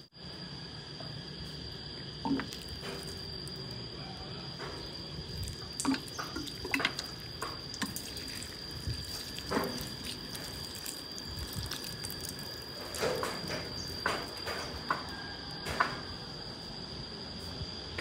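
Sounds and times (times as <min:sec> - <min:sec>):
water dripping on soil: 0:02.2 - 0:03.6, 0:05.4 - 0:14.3
water pouring and splashing: 0:02.2 - 0:03.6, 0:05.2 - 0:14.8.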